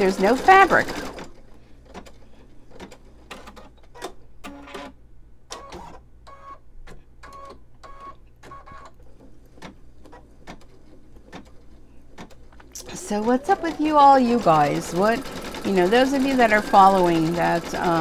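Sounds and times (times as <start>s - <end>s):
embroidery machine motor hum: 0.0s - 1.2s, 12.7s - 18.0s.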